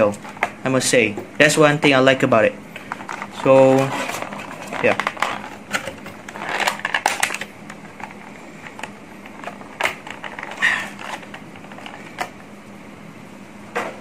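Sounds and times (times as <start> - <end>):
plastic film crackling: 2.8 - 12.2.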